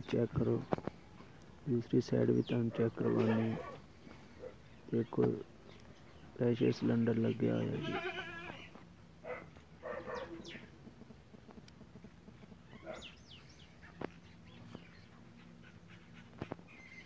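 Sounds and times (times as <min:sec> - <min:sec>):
faint animal calls: 0:12.4 - 0:17.0
bird chirps: 0:12.6 - 0:17.0.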